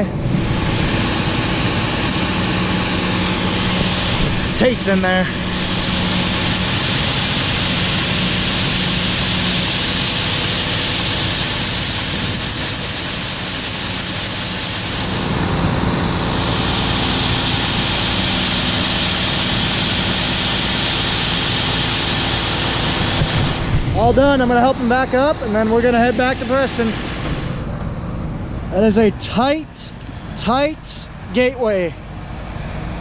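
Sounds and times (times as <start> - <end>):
tractor engine running: 0.0 - 33.0
grain pouring hiss: 2.1 - 27.7.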